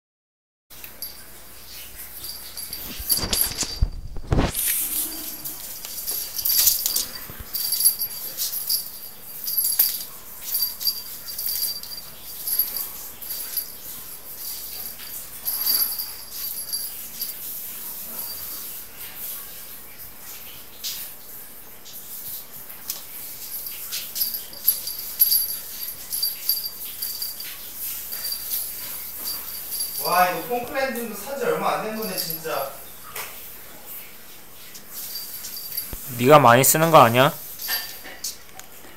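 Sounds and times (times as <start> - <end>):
small bell jingling: 0.8 - 18.7, 23.3 - 32.9, 34.9 - 38.1.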